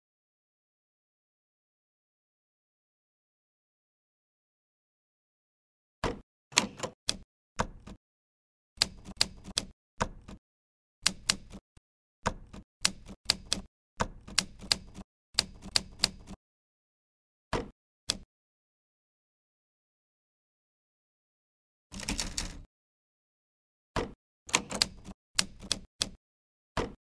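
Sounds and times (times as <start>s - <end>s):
typewriter key clacks: 22.0s - 22.6s.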